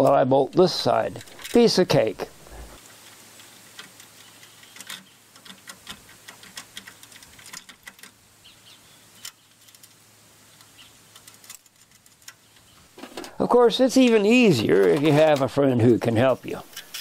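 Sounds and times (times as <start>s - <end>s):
small metallic clicks and taps: 3.0s - 8.2s, 10.6s - 13.4s.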